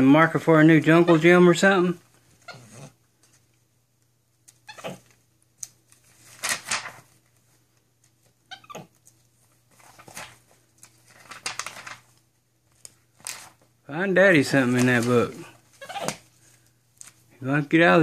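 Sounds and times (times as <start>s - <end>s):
pages rustling and turning: 4.5s - 8.4s, 9.0s - 13.8s, 14.4s - 17.3s
monkey giving squeaky calls: 4.7s - 5.0s, 8.5s - 8.9s, 15.8s - 16.2s.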